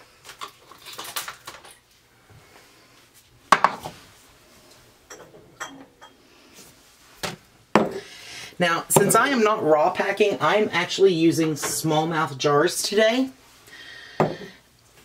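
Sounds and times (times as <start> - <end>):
glass jars clinking: 5.1 - 6.2.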